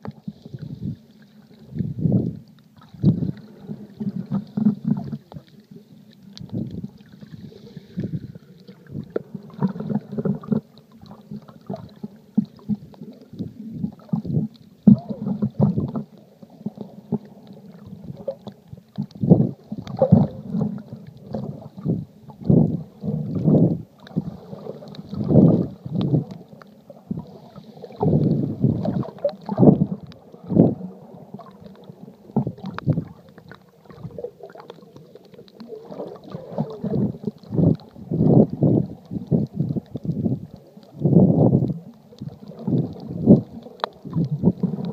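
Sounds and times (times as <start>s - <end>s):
muffled water sloshing and gurgling: 0.0s - 44.9s.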